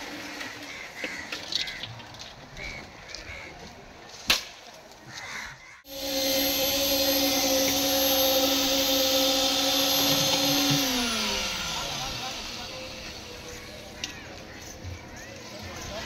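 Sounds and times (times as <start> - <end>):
concrete vibrator whine: 5.9 - 16.0.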